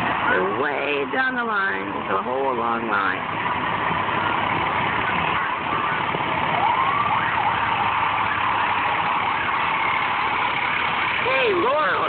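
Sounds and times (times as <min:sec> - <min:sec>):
traffic noise: 0:00.0 - 0:12.0
truck engine passing: 0:00.0 - 0:12.0
siren wailing: 0:04.1 - 0:12.0.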